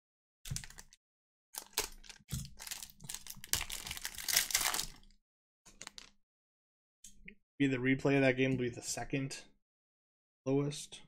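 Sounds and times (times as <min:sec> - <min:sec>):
foil wrapper crinkling: 0:00.5 - 0:01.0, 0:01.6 - 0:05.1, 0:05.8 - 0:06.1.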